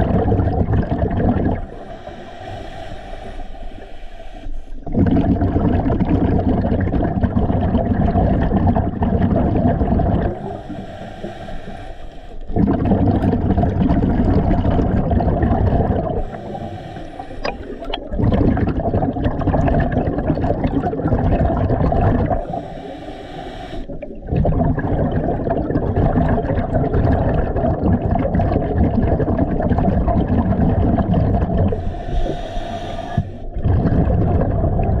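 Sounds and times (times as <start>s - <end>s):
rumbling exhaust bubbles: 0.0s - 2.0s, 4.8s - 10.7s, 12.5s - 22.7s, 23.9s - 32.5s, 33.4s - 35.0s
hissing regulator inhalations: 1.6s - 4.9s, 10.4s - 12.5s, 16.2s - 18.1s, 22.4s - 24.2s, 31.7s - 33.6s.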